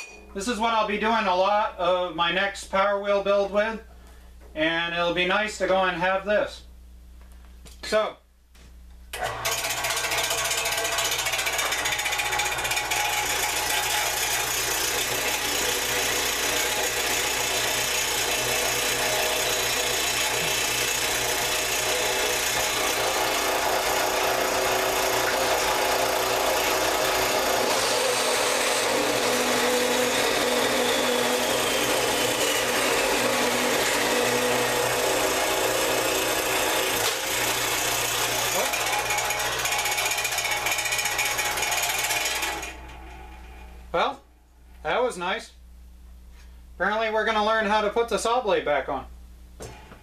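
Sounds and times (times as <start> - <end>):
band saw cutting metal: 9.2 - 43.6.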